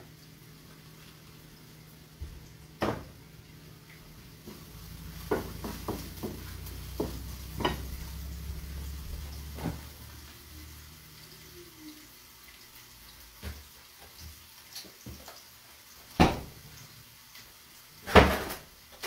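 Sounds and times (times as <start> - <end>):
low steady hum: 0.0 - 13.4
pans knocking and clinking: 5.2 - 7.9.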